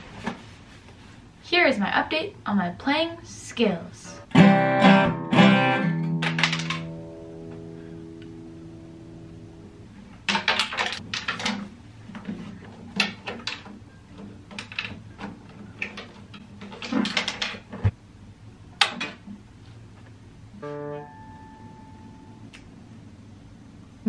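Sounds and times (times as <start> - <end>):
acoustic guitar being handled: 6.0 - 7.7.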